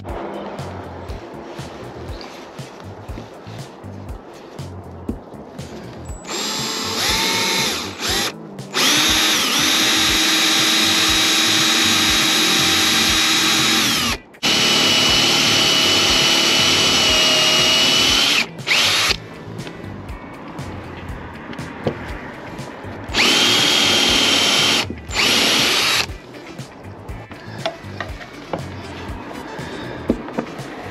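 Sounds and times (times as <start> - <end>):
cordless drill whine: 6.2 - 19.2, 23.1 - 26.1.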